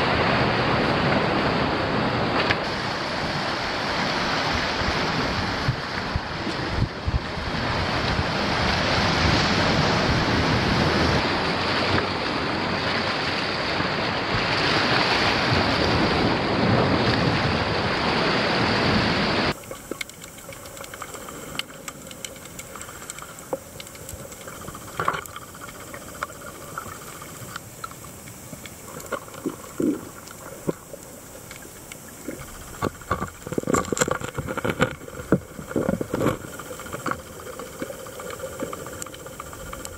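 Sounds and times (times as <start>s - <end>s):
wind on microphone: 0.0s - 19.6s
surf washing against rocks: 0.0s - 39.9s
underwater clicks and pops: 19.5s - 39.9s.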